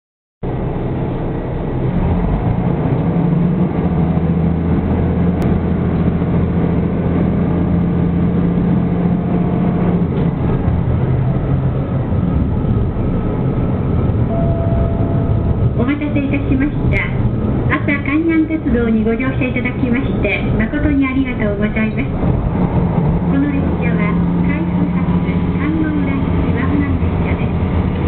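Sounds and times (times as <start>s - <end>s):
diesel railcar engine: 0.4s - 28.0s.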